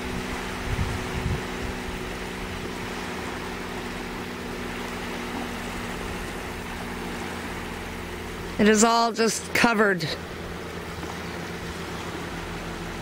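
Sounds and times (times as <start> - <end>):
wind rumbling on microphone: 0.0 - 8.6
distant motor hum: 0.0 - 13.0
outdoor background noise: 0.0 - 13.0.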